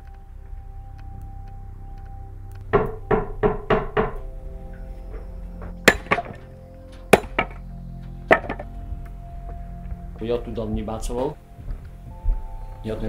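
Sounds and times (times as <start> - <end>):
background music with held tones: 0.0 - 13.0
axe striking wood: 5.9 - 6.4, 7.2 - 7.6, 8.3 - 8.7.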